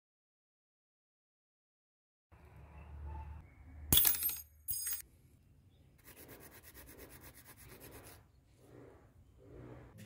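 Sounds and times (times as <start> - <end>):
file scraping metal rod: 6.1 - 10.0.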